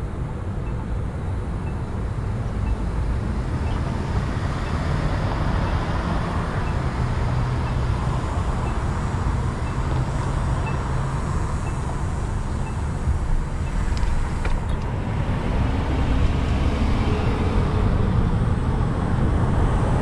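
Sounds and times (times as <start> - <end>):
traffic rumble: 0.0 - 20.0.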